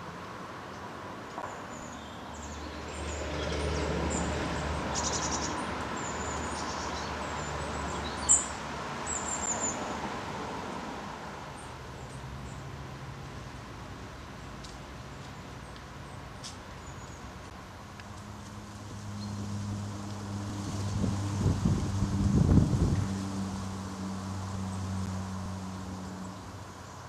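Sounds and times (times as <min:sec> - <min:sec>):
small birds chirping: 0:04.9 - 0:09.9, 0:15.1 - 0:17.5.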